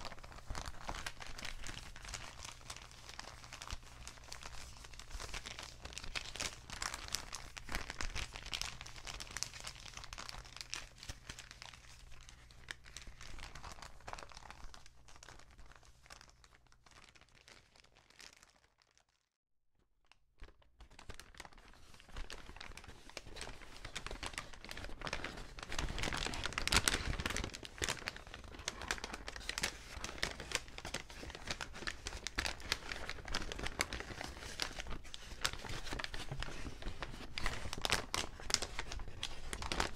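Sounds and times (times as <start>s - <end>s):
paper bag crinkling: 0.0s - 15.6s, 20.8s - 39.9s.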